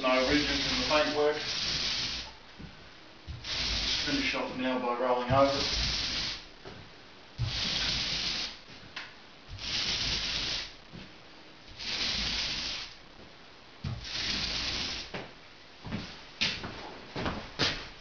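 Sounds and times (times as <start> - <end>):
paint roller hissing on ceiling: 0.0 - 2.7, 3.3 - 6.6, 7.4 - 8.9, 9.5 - 11.1, 11.7 - 13.0, 13.8 - 15.3.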